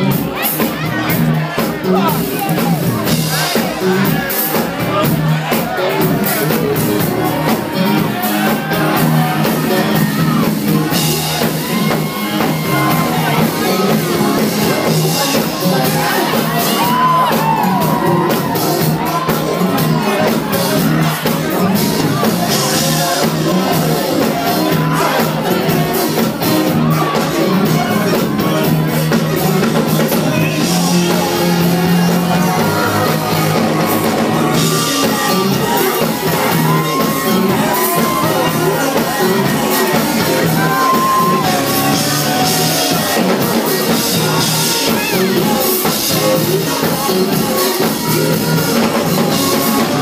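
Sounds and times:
crowd shouting and whooping: 0.0s - 50.0s
loud live band music: 0.0s - 50.0s.

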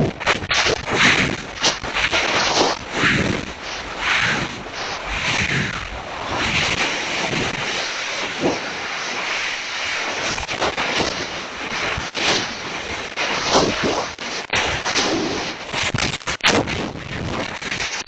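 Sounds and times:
wind roar over microphone: 0.0s - 18.0s.

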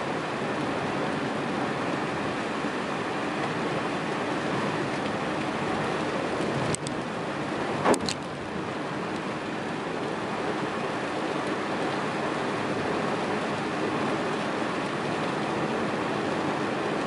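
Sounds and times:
tyres hissing on wet road: 7.1s - 17.0s.

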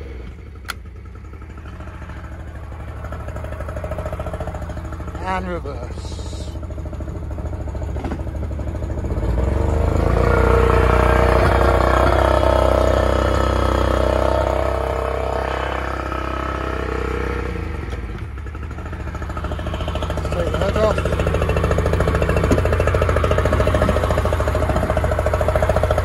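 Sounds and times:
outboard motor revving: 0.0s - 26.0s.

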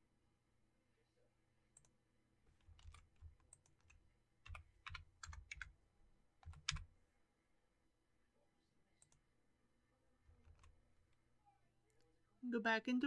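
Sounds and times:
keyboard keys clicking: 2.6s - 5.7s, 6.4s - 6.8s.

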